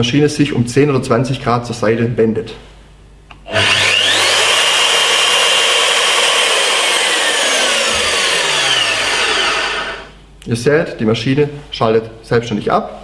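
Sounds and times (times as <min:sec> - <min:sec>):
drill motor whining: 0:03.4 - 0:10.2.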